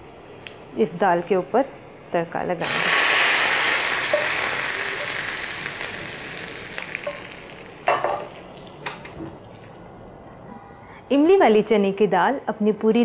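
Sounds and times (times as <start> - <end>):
loud sizzle: 0.0 - 9.2.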